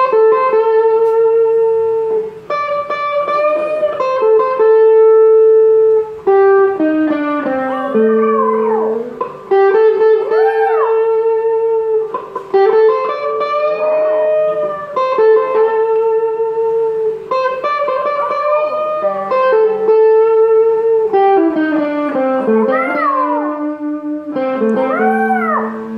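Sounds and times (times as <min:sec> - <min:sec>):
guitar playing slow melody: 0:00.0 - 0:25.9
small dog howling: 0:03.0 - 0:05.6, 0:07.1 - 0:12.0, 0:13.4 - 0:15.9, 0:17.6 - 0:20.3, 0:22.0 - 0:24.0, 0:24.6 - 0:25.9.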